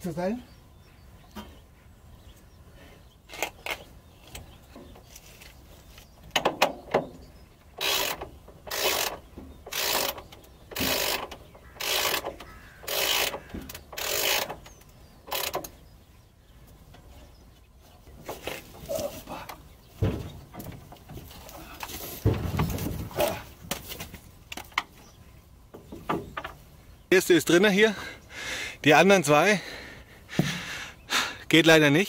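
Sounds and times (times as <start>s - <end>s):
ratchet wrench clicking: 7.8s - 14.6s, 15.3s - 15.7s.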